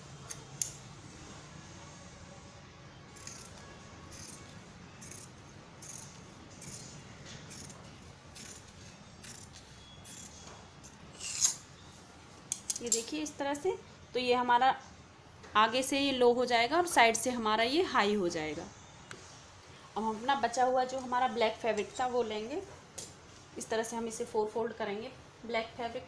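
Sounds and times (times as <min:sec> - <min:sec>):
scissors snipping fabric: 0:04.2 - 0:10.4.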